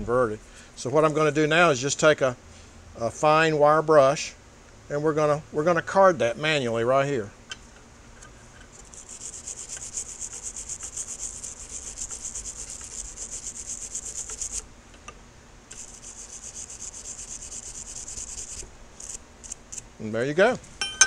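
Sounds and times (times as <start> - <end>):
wire brush scrubbing steel: 8.6 - 14.6, 15.7 - 19.8.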